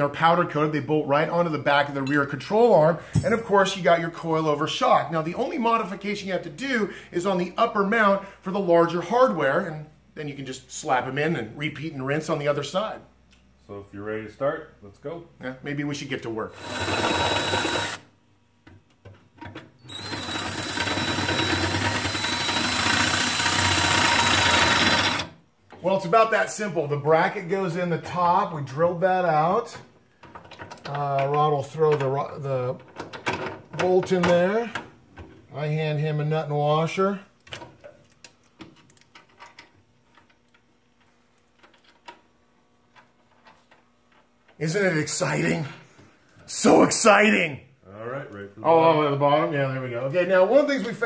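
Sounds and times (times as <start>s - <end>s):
cordless drill whining: 16.6s - 18.1s, 19.9s - 25.4s.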